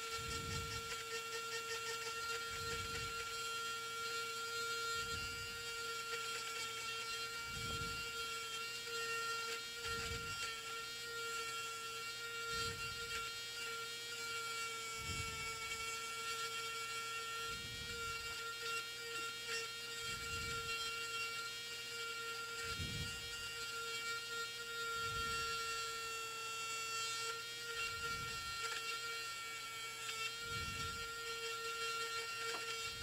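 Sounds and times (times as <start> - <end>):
electrical hum: 26.9 - 33.0.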